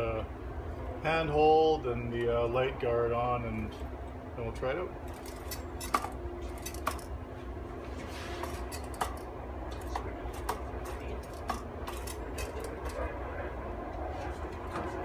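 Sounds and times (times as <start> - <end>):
low steady hum: 0.0 - 15.0
metal parts clicking: 5.1 - 7.1, 8.5 - 13.0.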